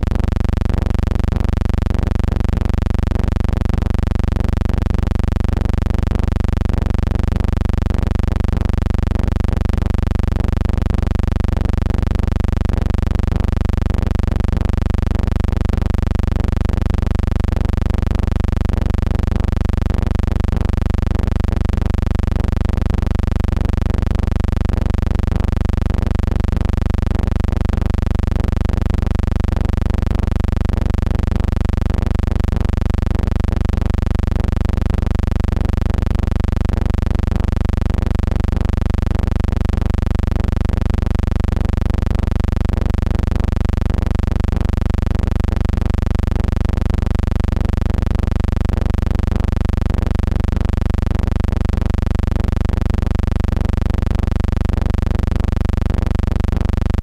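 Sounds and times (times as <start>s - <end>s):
low electrical hum: 0.0s - 34.2s.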